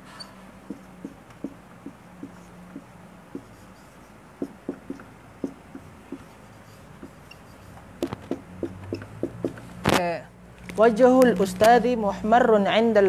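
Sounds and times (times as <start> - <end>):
marker writing on whiteboard: 0.0 - 9.8
marker clicks: 0.7 - 10.0.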